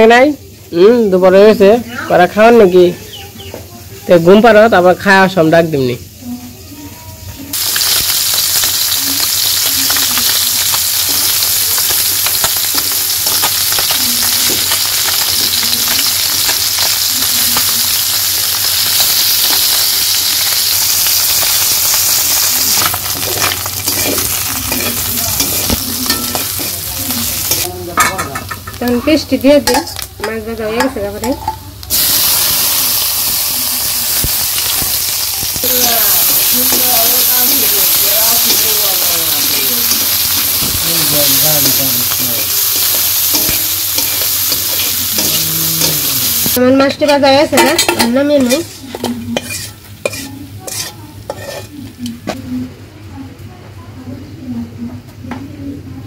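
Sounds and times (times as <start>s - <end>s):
fish sizzling in hot oil: 0.0s - 52.3s
metal spatula scraping pan: 22.7s - 28.8s, 46.8s - 51.8s.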